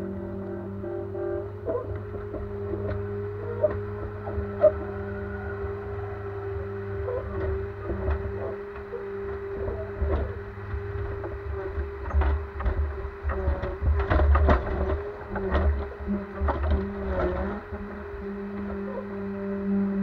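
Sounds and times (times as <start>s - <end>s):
diesel engine and hydraulics hum: 0.0s - 20.0s
knocks and clunks: 7.1s - 18.9s.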